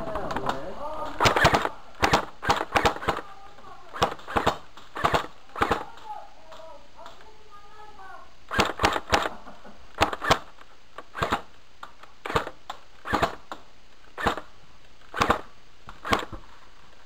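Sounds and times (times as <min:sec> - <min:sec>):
airsoft gun shots: 0:01.2 - 0:03.3, 0:03.9 - 0:06.1, 0:08.5 - 0:11.6, 0:12.2 - 0:13.6, 0:14.2 - 0:14.5, 0:15.1 - 0:16.4.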